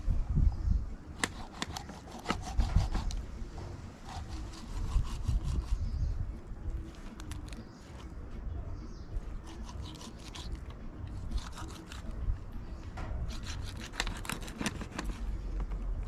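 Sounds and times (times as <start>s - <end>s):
knife cutting raw meat: 1.2s - 3.2s, 4.0s - 5.8s, 9.4s - 12.2s.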